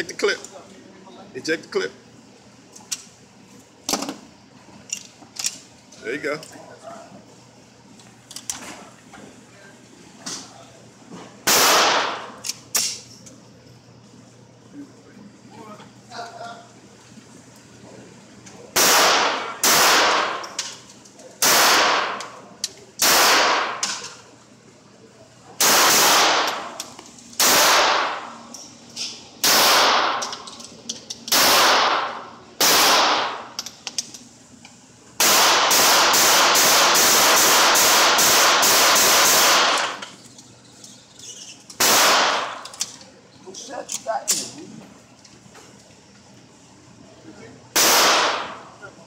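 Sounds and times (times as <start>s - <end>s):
pistol shots echoing: 11.5s - 12.4s, 18.8s - 20.5s, 21.4s - 22.3s, 23.0s - 23.8s, 25.6s - 26.8s, 27.4s - 28.3s, 29.4s - 30.3s, 31.3s - 33.5s, 35.2s - 40.0s, 41.8s - 42.6s, 47.8s - 48.6s.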